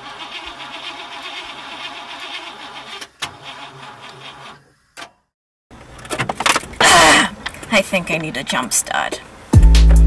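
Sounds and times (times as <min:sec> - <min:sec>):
car starter cranking engine: 0:00.0 - 0:04.7.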